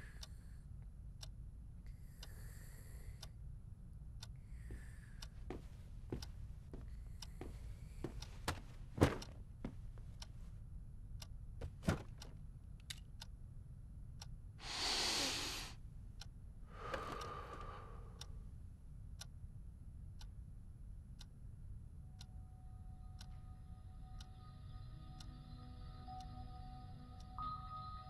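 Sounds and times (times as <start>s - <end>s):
long breathy sounds: 1.9s - 3.4s, 14.6s - 15.8s, 16.7s - 18.4s.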